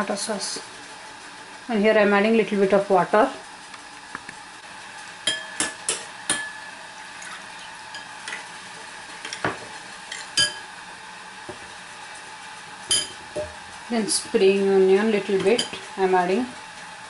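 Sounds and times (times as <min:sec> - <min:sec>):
chicken sizzling in a pan: 0:00.0 - 0:17.0
metal spoon clinking in ceramic bowl: 0:05.3 - 0:06.6, 0:10.1 - 0:10.6, 0:12.9 - 0:13.5.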